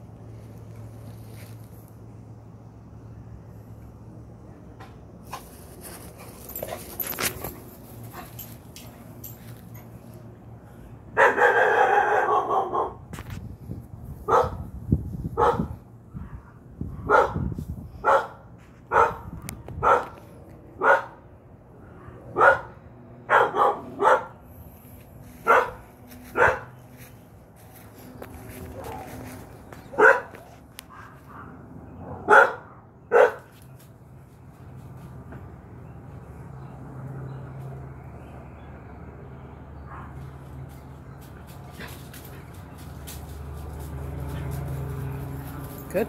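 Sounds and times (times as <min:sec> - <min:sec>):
dog barking loudly: 0:11.2 - 0:13.0, 0:14.3 - 0:14.7, 0:15.4 - 0:15.8, 0:17.0 - 0:20.2, 0:20.8 - 0:21.2, 0:22.3 - 0:24.4, 0:25.4 - 0:26.8, 0:29.9 - 0:33.5.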